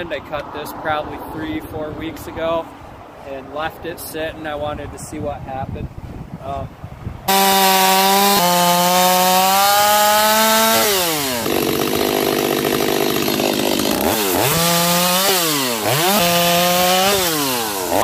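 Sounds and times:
chainsaw cutting log: 0:07.3 - 0:18.0.

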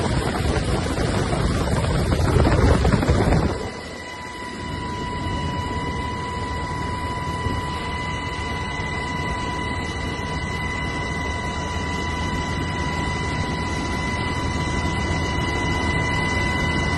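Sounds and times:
helicopter rotor and engine rumble: 0:00.0 - 0:16.9
high whine: 0:00.0 - 0:16.9.

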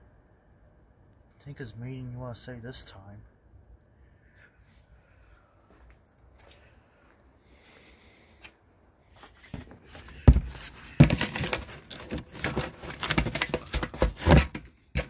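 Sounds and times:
cardboard box rustling: 0:09.2 - 0:15.0
sharp thumps on cardboard: 0:09.6 - 0:15.0.

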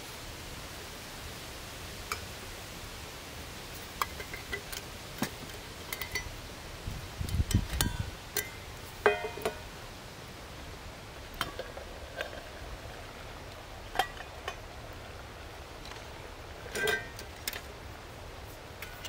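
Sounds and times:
metal cookware clinking on wood: 0:04.0 - 0:06.3, 0:07.5 - 0:09.6, 0:16.7 - 0:17.6.

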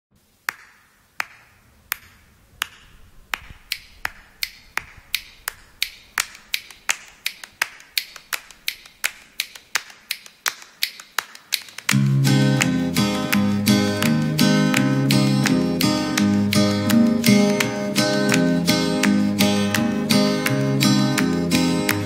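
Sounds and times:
sharp clicks: 0:00.6 - 0:12.0
guitar music: 0:11.9 - 0:22.0.

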